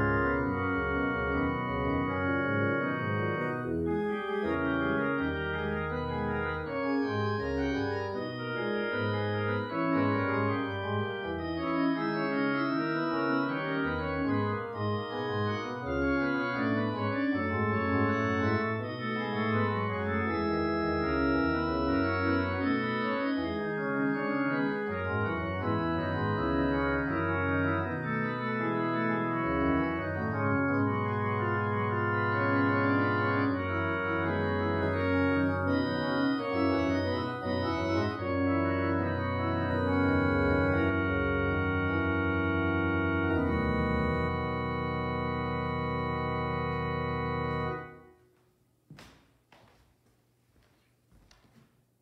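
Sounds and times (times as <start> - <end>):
organ playing held chords: 0.0 - 48.3
faint knocks: 48.9 - 49.9.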